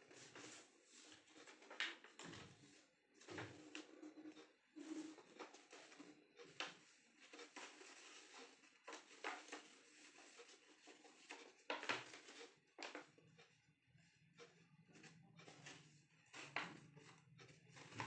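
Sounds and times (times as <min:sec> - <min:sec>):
paper crinkling being folded: 0:00.0 - 0:02.8, 0:04.8 - 0:13.1.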